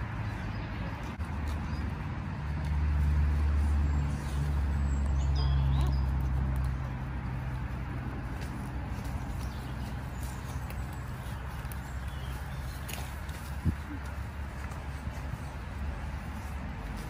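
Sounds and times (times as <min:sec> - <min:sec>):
low engine hum: 0:00.0 - 0:17.0
bird chirps: 0:03.9 - 0:06.2.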